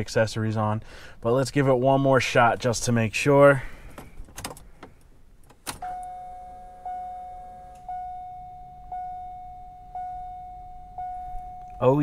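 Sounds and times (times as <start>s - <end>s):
ignition key click: 5.4s - 6.3s
car warning chime: 5.8s - 12.0s
low tone: 5.8s - 12.0s.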